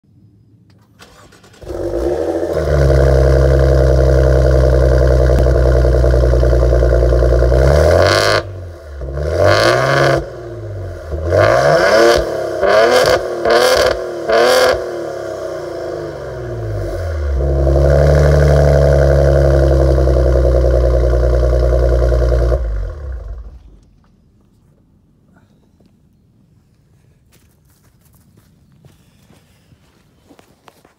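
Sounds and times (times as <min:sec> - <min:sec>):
car engine starting and revving: 0:00.8 - 0:24.0.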